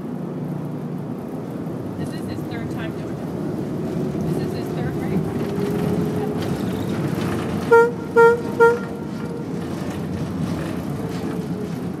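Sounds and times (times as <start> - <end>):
ship's horn blasts: 7.6 - 9.5.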